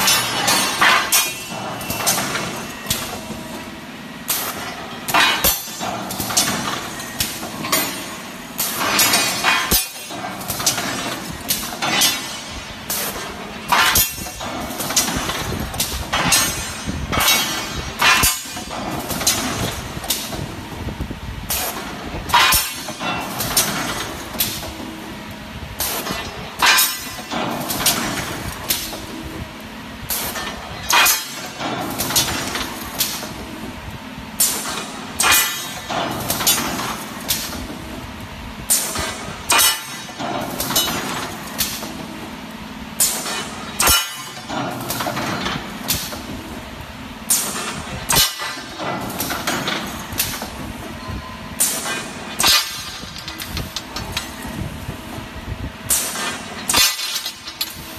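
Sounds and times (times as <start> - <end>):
steel bars clanking: 0.0 - 3.4, 4.4 - 20.4, 22.3 - 24.8, 26.0 - 29.1, 30.3 - 33.4, 38.7 - 41.9, 43.0 - 46.2, 47.3 - 54.7, 55.9 - 57.9.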